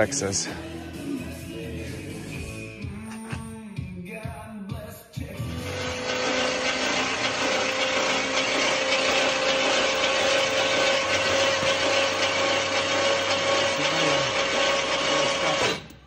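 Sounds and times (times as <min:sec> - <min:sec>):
engine cranking on starter motor: 0:05.5 - 0:16.0.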